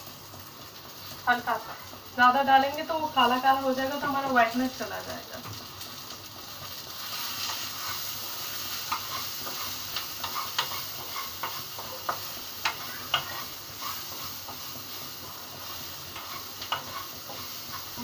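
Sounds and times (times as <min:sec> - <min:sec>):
food sizzling in oil: 0:00.0 - 0:18.0
spoon scraping and knocking pan: 0:08.7 - 0:18.0.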